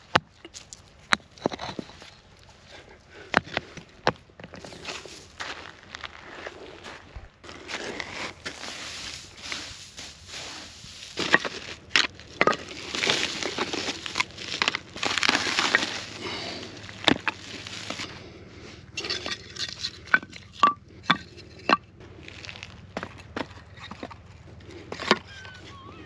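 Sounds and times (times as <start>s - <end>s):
kindling rustling in a sack: 7.7s - 11.8s
wooden sticks knocking: 19.0s - 21.9s.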